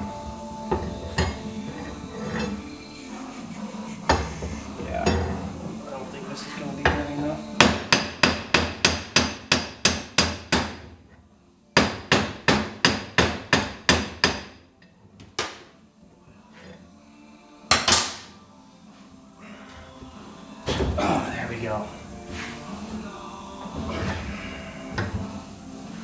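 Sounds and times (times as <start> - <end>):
hammer striking steel: 7.6 - 10.9, 11.8 - 14.6.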